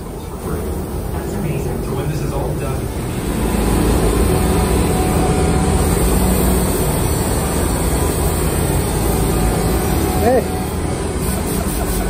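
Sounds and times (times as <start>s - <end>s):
air sander on metal wheel: 2.9s - 12.0s.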